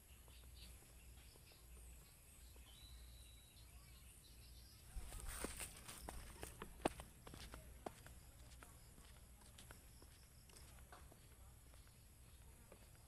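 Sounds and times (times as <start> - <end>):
faint bird chirps: 0.0 - 6.5
footsteps on grass and dirt: 4.9 - 13.0.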